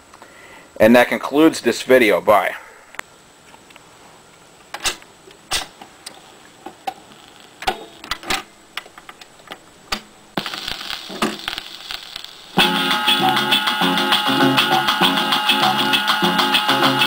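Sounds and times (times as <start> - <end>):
record hiss and crackles: 0.0 - 17.0
record changer clicks and clunks: 7.6 - 11.6.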